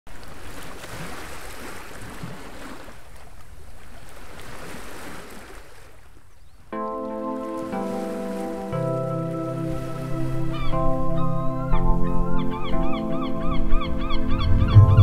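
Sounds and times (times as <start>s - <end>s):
wind: 0.1s - 15.0s
surf rushing: 13.8s - 15.0s.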